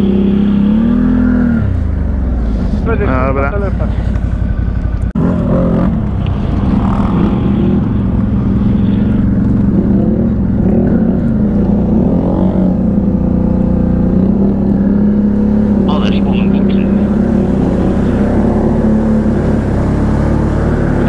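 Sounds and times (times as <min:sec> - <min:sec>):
engine drone rising and falling: 0:00.0 - 0:21.0
quad engine pulsing: 0:00.0 - 0:21.0.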